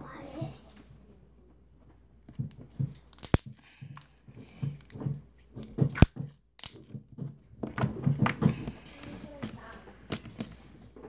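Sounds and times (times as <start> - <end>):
slime squishing and crackling: 3.0 - 4.2, 5.7 - 6.9
slime sharp pops: 5.8 - 6.9.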